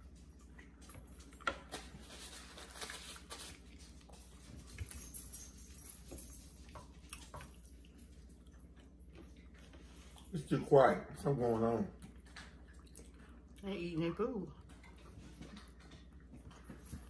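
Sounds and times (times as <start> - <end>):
low room hum: 0.0 - 17.0
soft chewing: 0.0 - 17.0
rustling: 1.6 - 6.4.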